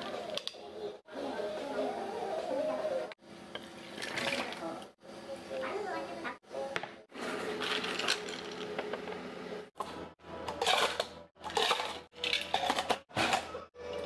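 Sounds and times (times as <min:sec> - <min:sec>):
ice cubes clinking into plastic cups: 0:07.6 - 0:08.8, 0:10.5 - 0:14.0.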